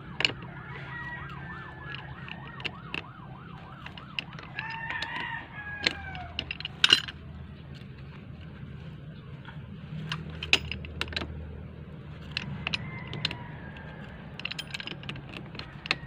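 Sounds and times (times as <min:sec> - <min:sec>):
siren wailing: 0:00.0 - 0:06.4
rooster crowing: 0:00.0 - 0:06.6, 0:12.4 - 0:14.4
wrench clinking on metal pipe: 0:12.2 - 0:16.0.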